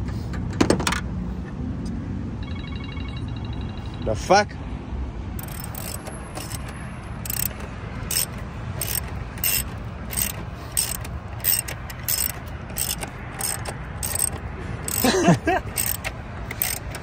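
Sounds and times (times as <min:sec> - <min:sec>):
ratchet wrench clicking: 0:05.4 - 0:17.0.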